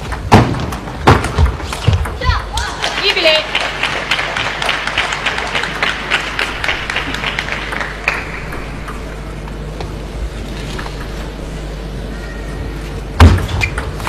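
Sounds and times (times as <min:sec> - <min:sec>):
steady hum of hall: 0:00.0 - 0:14.0
spectators clapping: 0:02.5 - 0:08.8.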